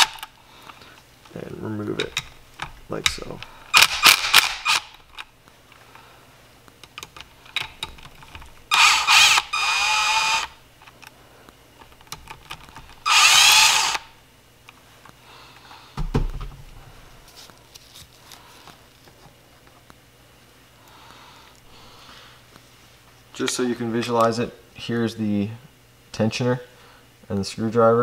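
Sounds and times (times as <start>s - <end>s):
cordless power tool whining: 0.0s - 0.2s, 3.8s - 5.0s, 8.7s - 10.6s, 13.0s - 14.1s
dull knock: 16.0s - 16.6s.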